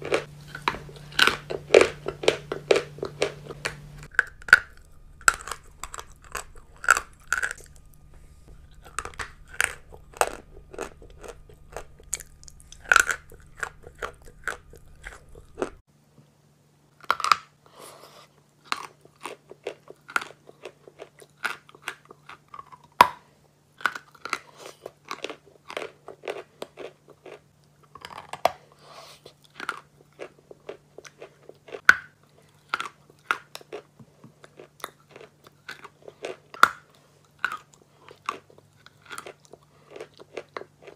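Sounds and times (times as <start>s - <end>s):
biting and crunching chalk: 0.0s - 15.8s, 29.5s - 40.9s
soft chewing: 0.0s - 15.8s, 17.0s - 23.0s, 23.8s - 40.9s.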